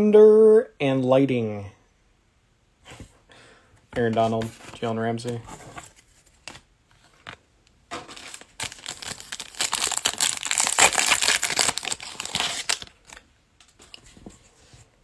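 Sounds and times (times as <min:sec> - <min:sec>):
foil wrapper tearing and crinkling: 0:08.0 - 0:13.2.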